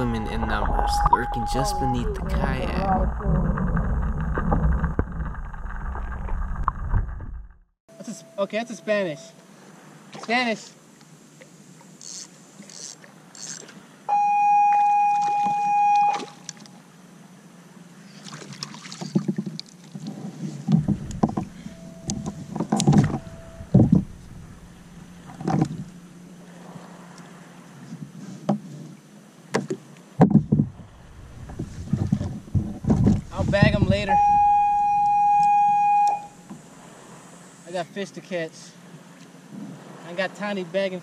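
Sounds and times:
loud steady beep tone: 0:00.0 - 0:02.8, 0:14.1 - 0:16.4, 0:21.6 - 0:24.5, 0:34.0 - 0:36.5
faint water: 0:00.0 - 0:07.2, 0:07.9 - 0:41.0
wind: 0:00.0 - 0:41.0
fishing gear handled in kayak: 0:18.7 - 0:26.0, 0:29.6 - 0:36.0.

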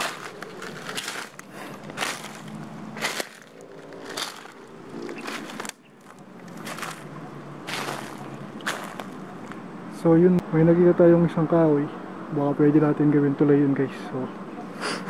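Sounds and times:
footsteps crunching dry leaves: 0:00.0 - 0:09.6.

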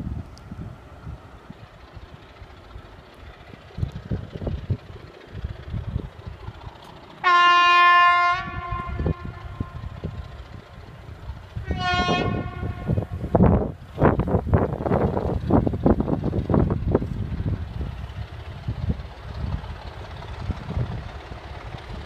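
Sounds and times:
distant locomotive rumble: 0:00.0 - 0:22.0
locomotive horn blasts: 0:07.2 - 0:09.9, 0:11.6 - 0:13.4
wind on microphone: 0:08.4 - 0:22.0.

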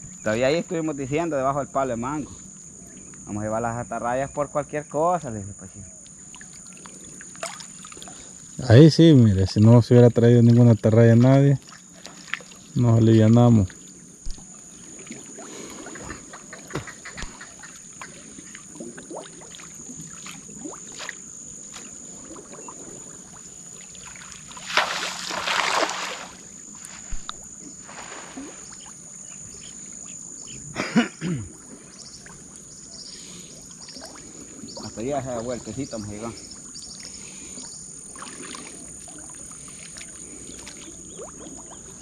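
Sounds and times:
water splashing in river: 0:06.3 - 0:08.3, 0:11.6 - 0:12.8, 0:14.2 - 0:29.2, 0:33.5 - 0:34.8, 0:36.6 - 0:42.0.

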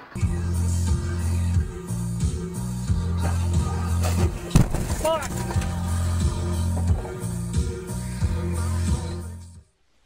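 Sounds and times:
music with strong bass line: 0:00.2 - 0:04.7, 0:05.3 - 0:09.6.

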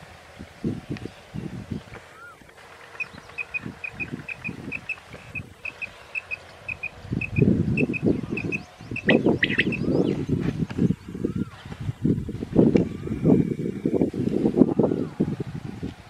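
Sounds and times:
quail chirping: 0:03.0 - 0:10.2.

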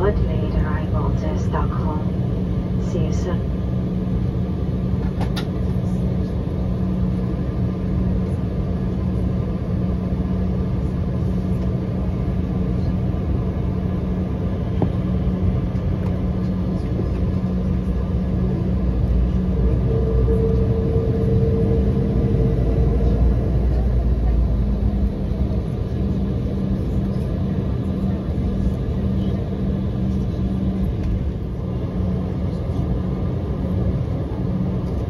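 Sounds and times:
jet engines humming at idle: 0:00.0 - 0:35.0
high steady tone: 0:18.6 - 0:26.8.

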